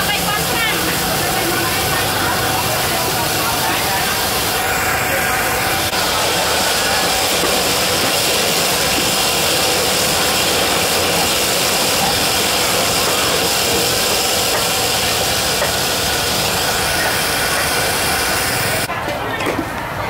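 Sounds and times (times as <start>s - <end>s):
machine hiss and drone: 0.0s - 18.9s.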